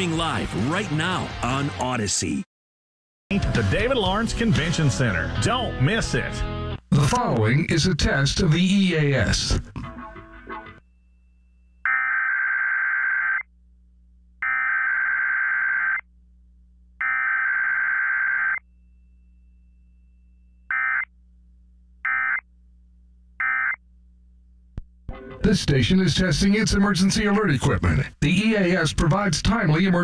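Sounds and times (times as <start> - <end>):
faint low hum: 13.4 - 25.0.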